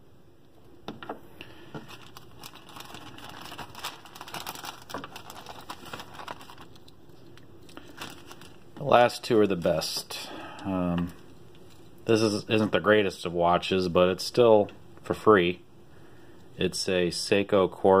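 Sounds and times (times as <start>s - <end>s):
plastic bag crinkling: 1.6s - 9.9s.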